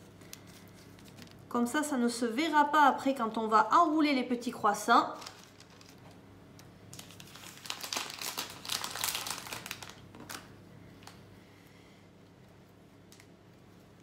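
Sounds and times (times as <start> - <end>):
paper and plastic packaging crinkling: 0.2 - 1.5, 5.0 - 6.2, 6.9 - 11.2.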